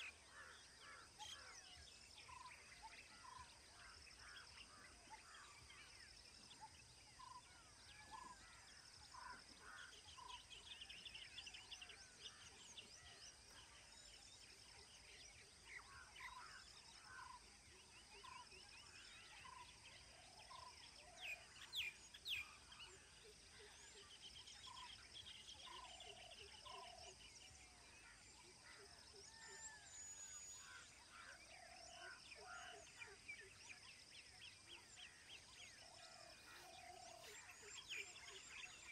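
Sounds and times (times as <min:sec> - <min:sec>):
birds calling: 0:34.6 - 0:38.9.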